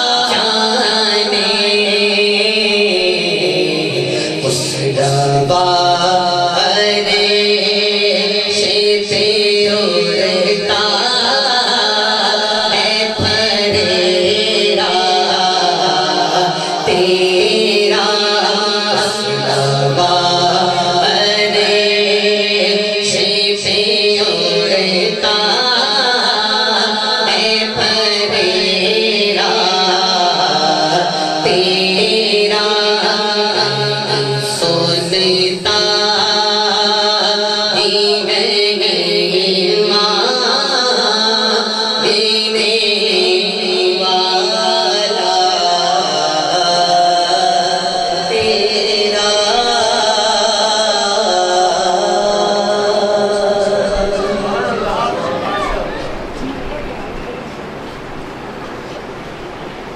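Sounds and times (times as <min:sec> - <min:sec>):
man singing into amplified microphone: 0:00.0 - 0:57.8.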